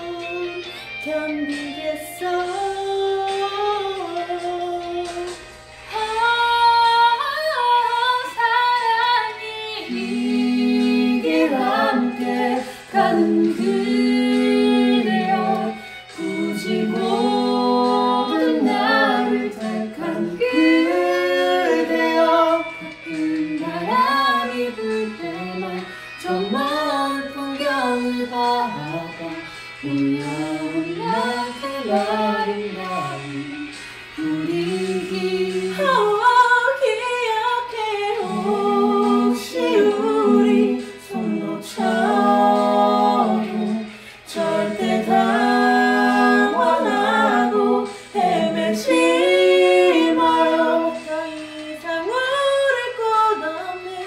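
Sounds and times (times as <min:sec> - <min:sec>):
group singing in harmony: 0:00.0 - 0:54.0
singers breathing: 0:12.6 - 0:12.9, 0:43.8 - 0:44.3, 0:47.9 - 0:48.2.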